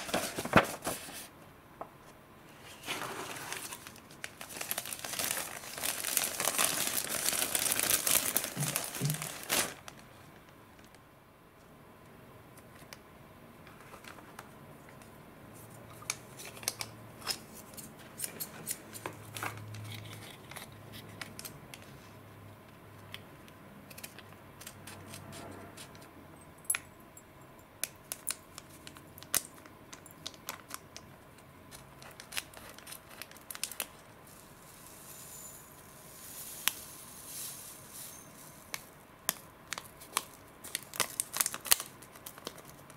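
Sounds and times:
foil and paper rustling: 0.0s - 1.3s, 2.7s - 10.0s, 39.7s - 42.8s
paper crumpling: 0.0s - 1.3s, 2.7s - 10.1s, 31.8s - 34.0s, 39.7s - 42.9s.

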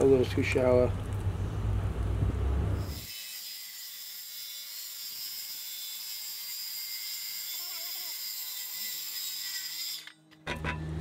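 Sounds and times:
circular saw cutting wood: 2.8s - 10.2s.

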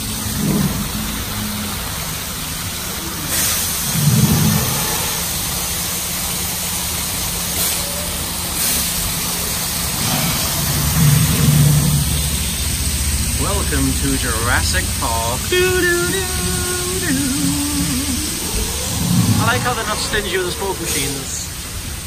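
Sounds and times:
waterfalls splashing into channel: 0.0s - 22.0s
low steady rumble: 9.6s - 22.0s.

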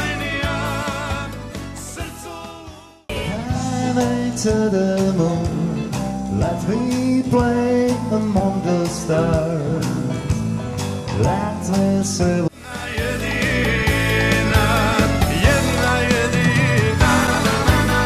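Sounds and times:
man singing: 0.0s - 10.5s, 11.1s - 18.0s
live band playing: 0.0s - 18.0s.

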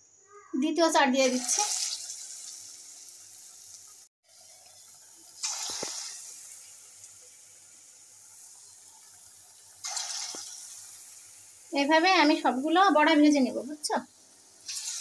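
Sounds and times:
hot oil sizzling in a wok: 0.6s - 15.0s
batter dropped into oil: 5.4s - 6.4s, 9.8s - 10.9s.

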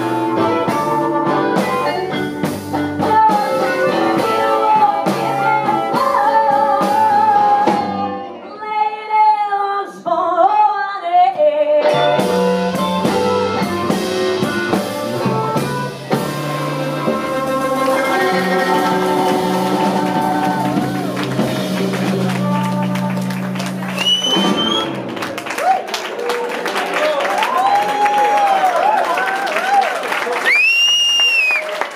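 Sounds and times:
blues band playing: 0.0s - 8.5s, 11.8s - 26.4s
woman singing: 2.9s - 12.3s, 17.0s - 23.6s.

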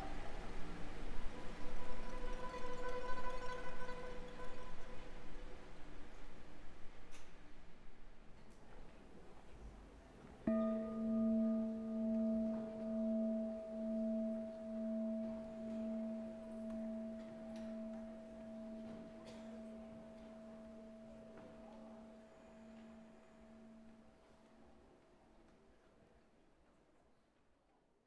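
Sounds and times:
bowl bell ringing: 10.5s - 24.3s.

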